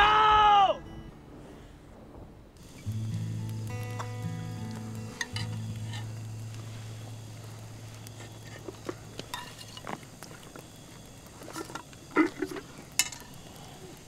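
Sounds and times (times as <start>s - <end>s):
low held tone: 0.8s - 9.5s
metal dishes clinking: 9.3s - 9.9s.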